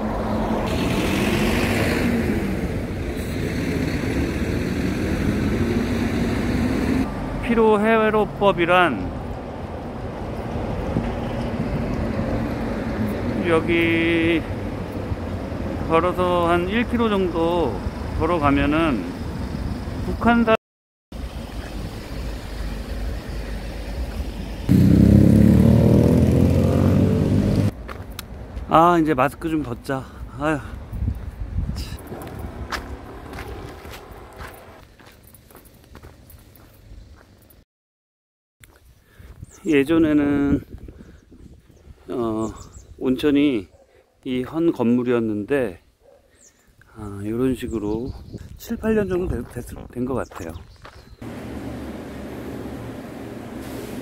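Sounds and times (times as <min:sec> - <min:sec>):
vehicle engine accelerating: 0:00.0 - 0:07.2, 0:24.3 - 0:27.8, 0:32.0 - 0:34.8, 0:51.2 - 0:54.0
vehicles passing by: 0:00.0 - 0:20.4, 0:21.2 - 0:37.6, 0:50.4 - 0:54.0
road traffic rumble: 0:00.0 - 0:20.5, 0:21.2 - 0:37.6, 0:50.3 - 0:54.0
low street rumble: 0:21.2 - 0:36.9, 0:51.2 - 0:54.0.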